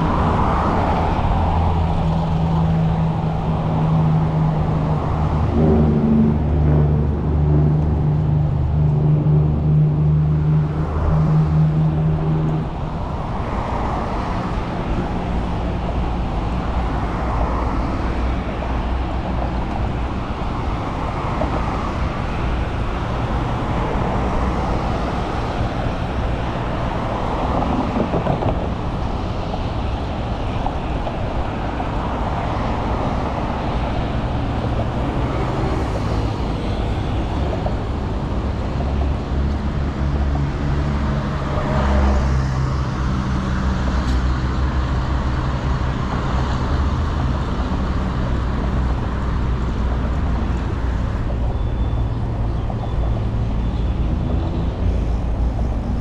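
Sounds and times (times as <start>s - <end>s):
city road traffic: 0.0s - 56.0s.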